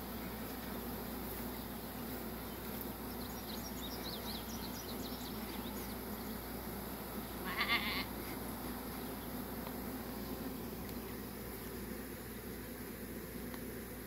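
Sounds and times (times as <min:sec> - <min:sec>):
bee swarm humming: 0:00.0 - 0:14.0
bird chirping: 0:02.5 - 0:06.4.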